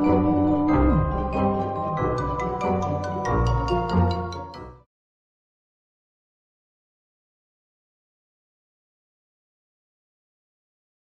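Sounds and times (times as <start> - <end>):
held chords over low bass: 0.0 - 1.9.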